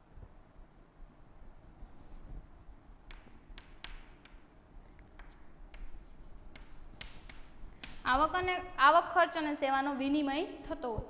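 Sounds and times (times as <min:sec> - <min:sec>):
chalk tapping and scratching: 0:01.8 - 0:02.4, 0:03.1 - 0:08.5.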